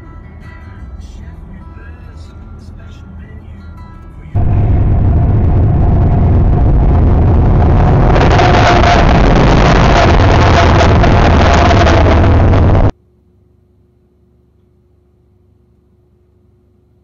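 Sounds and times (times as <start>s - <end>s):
locomotive engine rumble: 0.8s - 12.9s.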